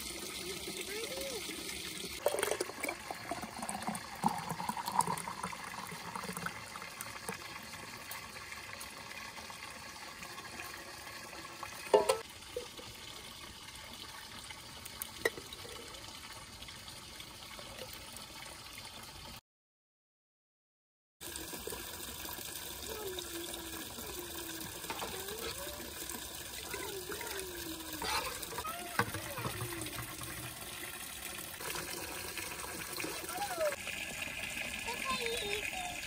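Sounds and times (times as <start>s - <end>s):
juice pouring into glass jar: 0.0s - 8.9s
running water: 0.0s - 19.4s, 21.2s - 36.0s.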